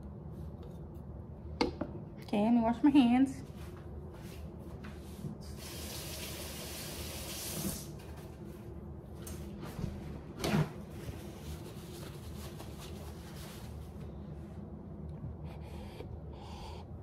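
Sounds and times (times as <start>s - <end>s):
faucet running: 5.6s - 7.9s.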